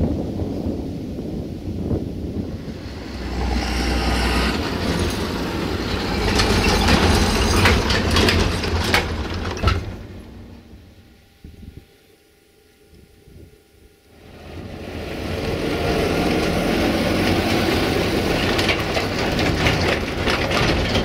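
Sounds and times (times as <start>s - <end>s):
tractor engine rumble: 0.0s - 11.8s, 14.2s - 21.0s
wheels clattering over rails: 2.4s - 10.8s, 14.5s - 21.0s.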